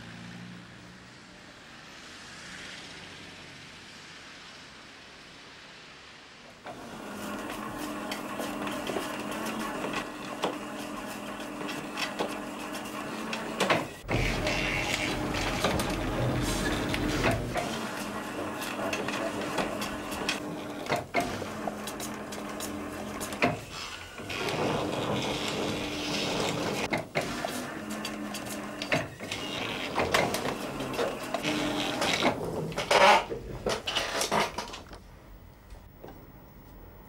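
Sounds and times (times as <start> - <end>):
mechanical clatter of rollers: 6.6 - 35.0
film editing table motor hum: 6.7 - 33.2.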